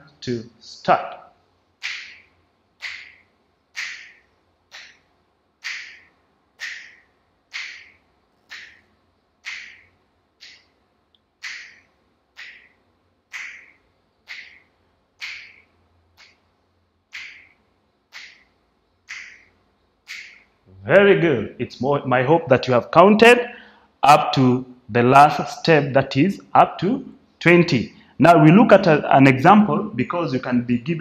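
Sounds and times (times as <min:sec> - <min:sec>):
fingers snapping: 0:01.8 - 0:02.2, 0:02.8 - 0:03.2, 0:03.8 - 0:05.0, 0:05.6 - 0:08.8, 0:09.4 - 0:10.7, 0:11.4 - 0:11.8, 0:12.4 - 0:15.6, 0:16.2 - 0:16.4, 0:17.1 - 0:18.5.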